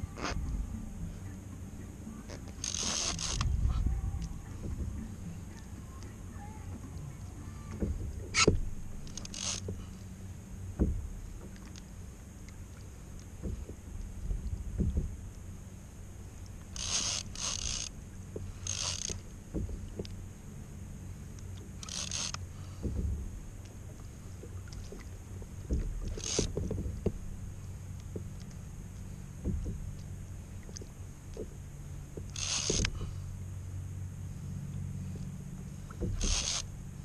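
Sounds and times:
steady low hum: 0.0 - 37.0
fishing gear knocks and clicks: 2.3 - 6.1, 7.7 - 9.8, 16.6 - 20.2, 21.4 - 33.1, 35.9 - 36.7.

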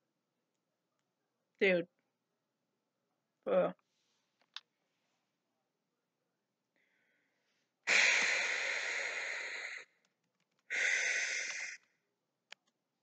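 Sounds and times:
breath rushing through fingers: 6.9 - 10.0, 10.7 - 11.9.

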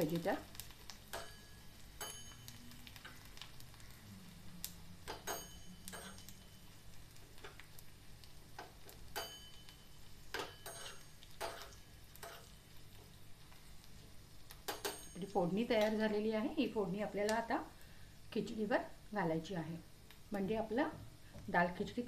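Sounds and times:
spices sizzling: 0.0 - 22.0
spoon clinking and scraping pan: 1.1 - 3.2, 5.1 - 6.6, 8.6 - 12.6, 14.6 - 15.4.

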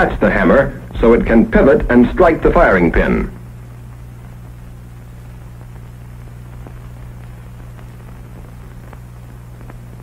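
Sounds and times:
film soundtrack hum and hiss: 0.0 - 10.0
faint crackles: 3.0 - 10.0.

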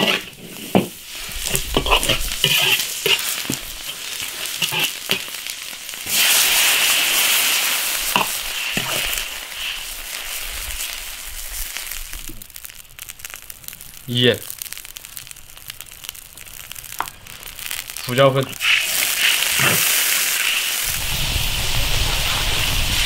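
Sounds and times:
metal ladle scraping and clinking: 0.0 - 0.8, 1.4 - 5.2
liquid hissing in a wok: 0.0 - 23.0
meat sizzling in a wok: 0.0 - 23.0.

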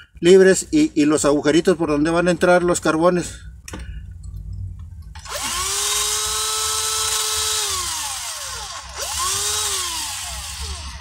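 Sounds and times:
electric drill spinning: 5.2 - 11.0.

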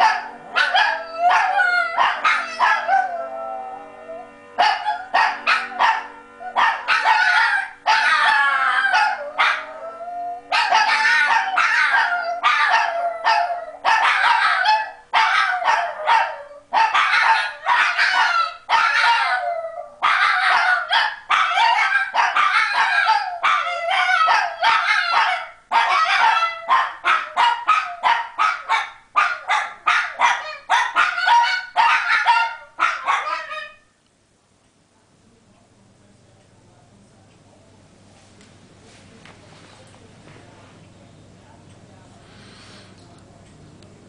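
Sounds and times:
dogs yipping: 0.0 - 3.0, 4.6 - 9.7, 10.5 - 19.4, 20.0 - 33.8
dogs howling: 0.0 - 33.8.

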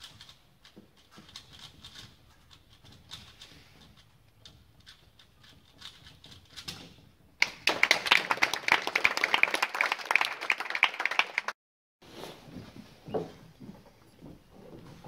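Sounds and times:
audience applauding: 7.4 - 11.6.

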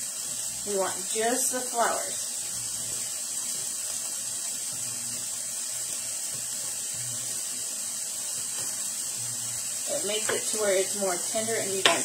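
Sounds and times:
sausage and onions sizzling in pan: 0.0 - 12.0.

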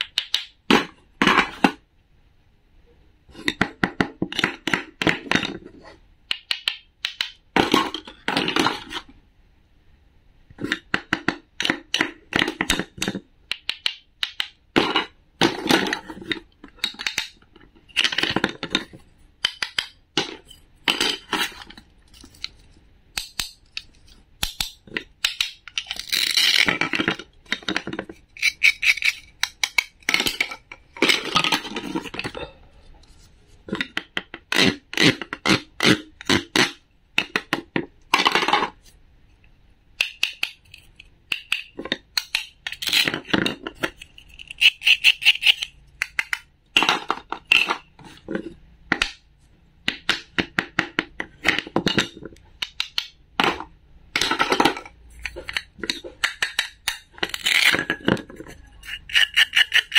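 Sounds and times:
wooden toy pieces clicking on board: 0.0 - 1.7, 6.3 - 9.0, 10.6 - 32.3, 40.0 - 47.9, 49.8 - 59.9.

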